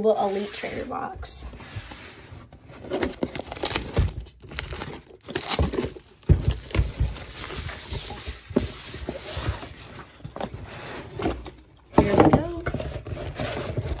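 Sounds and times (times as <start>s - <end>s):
plastic wrapping rustling and crinkling: 0.0s - 14.0s
cardboard knocks: 5.4s - 7.6s.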